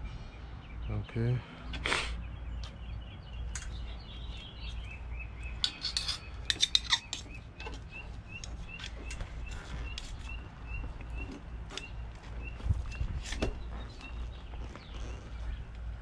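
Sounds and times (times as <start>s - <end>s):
small bird chirping: 2.2s - 16.0s
metal tools clinking and rattling: 3.5s - 4.0s, 5.6s - 9.2s.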